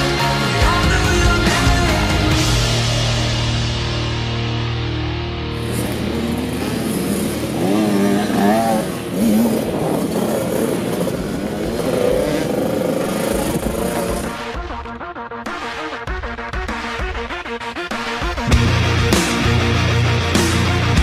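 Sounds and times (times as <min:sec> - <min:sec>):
dirt bike engines revving: 0:05.5 - 0:14.6.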